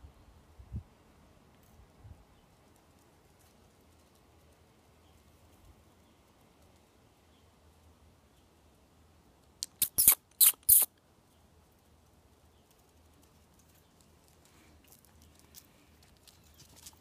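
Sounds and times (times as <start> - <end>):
dog yipping: 9.8 - 10.9.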